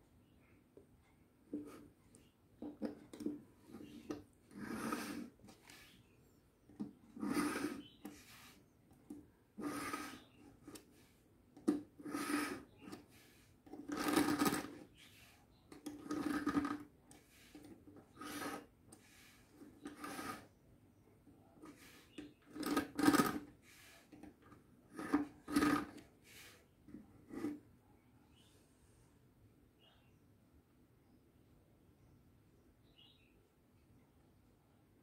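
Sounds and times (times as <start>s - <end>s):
knife grinding in sharpener: 4.6s - 5.3s, 7.2s - 8.0s, 12.0s - 12.6s.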